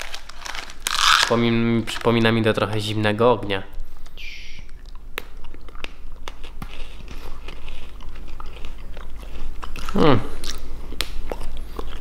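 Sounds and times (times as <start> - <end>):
crunching crisp biscuit sticks: 5.4 - 12.0.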